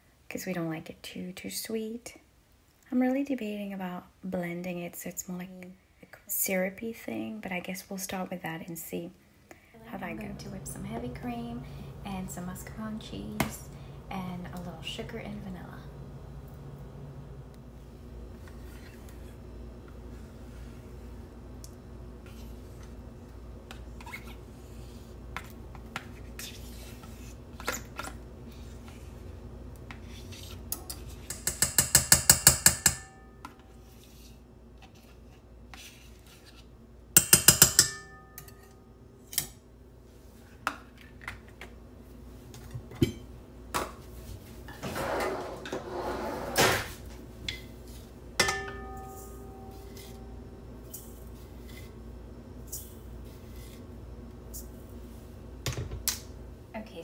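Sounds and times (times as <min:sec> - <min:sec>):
utensil tapping metal bowl: 0:30.8 - 0:33.6, 0:37.2 - 0:38.8, 0:48.4 - 0:50.3
metal bowl ringing: 0:32.0 - 0:33.7, 0:37.2 - 0:38.9, 0:48.4 - 0:51.0.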